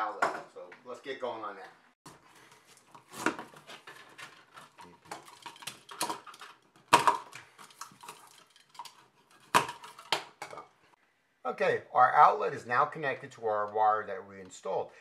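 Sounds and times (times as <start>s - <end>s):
cable rustling and scraping: 2.1s - 6.7s.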